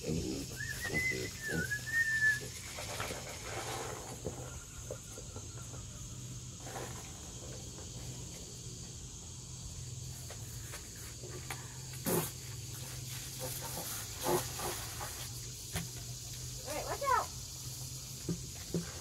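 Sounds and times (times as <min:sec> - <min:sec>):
insects droning: 0:00.0 - 0:19.0
plastic bucket and hose knocking: 0:18.2 - 0:19.0.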